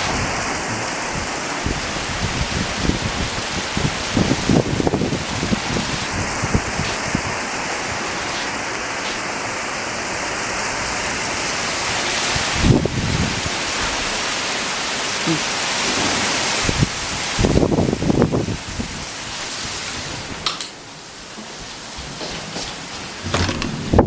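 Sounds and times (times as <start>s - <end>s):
heavy rain pouring: 0.0s - 24.0s
low thump: 23.2s - 24.0s.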